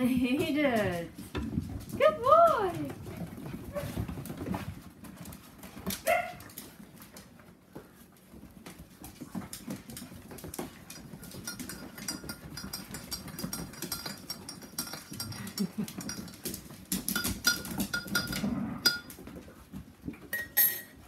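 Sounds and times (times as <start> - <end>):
dog claws clicking on floor: 0.3 - 20.3
metallic clinks: 11.2 - 19.1, 20.3 - 21.0.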